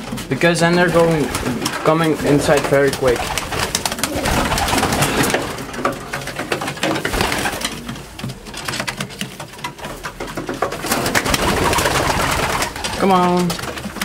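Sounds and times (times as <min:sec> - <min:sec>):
pigeons cooing: 0:00.0 - 0:14.0.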